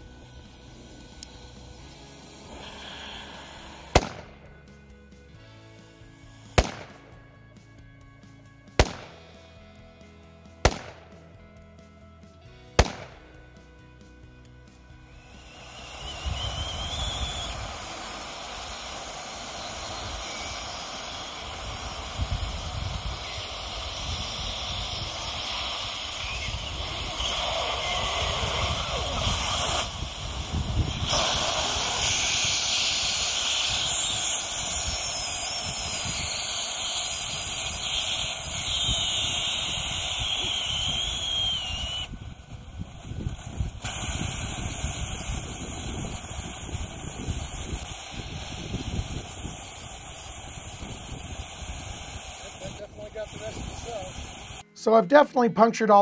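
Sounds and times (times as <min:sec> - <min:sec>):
battery hissing gas: 0:00.0 - 0:07.4, 0:08.7 - 0:09.6, 0:10.5 - 0:11.3, 0:12.6 - 0:55.2
wavering whistle: 0:15.0 - 0:42.2.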